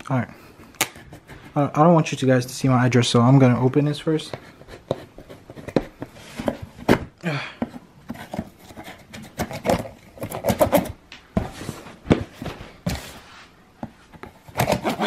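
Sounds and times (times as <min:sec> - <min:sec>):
cardboard rustling and knocking: 0:04.3 - 0:15.0
knife sawing through tape: 0:14.5 - 0:15.0.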